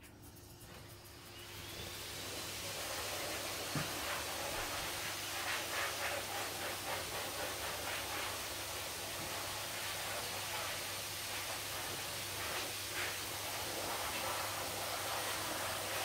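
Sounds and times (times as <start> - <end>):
fingers rubbing dog's ear: 0.0 - 1.3, 3.0 - 8.4
steady hiss: 0.0 - 16.0.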